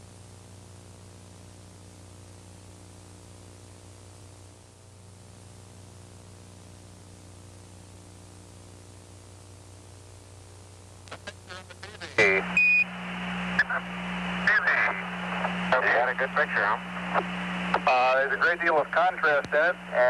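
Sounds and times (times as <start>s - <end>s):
low constant hum: 0.0s - 20.0s
radio static hiss: 0.0s - 20.0s.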